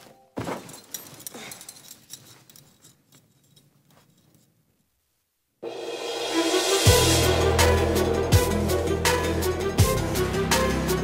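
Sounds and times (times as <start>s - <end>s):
tense background score: 5.8s - 11.0s
deep bass hits dropping in pitch: 6.3s - 10.6s
sharp percussion ticking: 6.3s - 10.8s.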